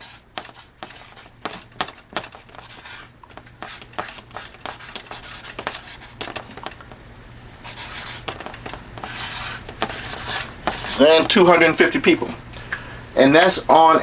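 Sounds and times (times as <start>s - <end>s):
marker scratching on paper: 0.0s - 6.9s, 7.6s - 11.6s.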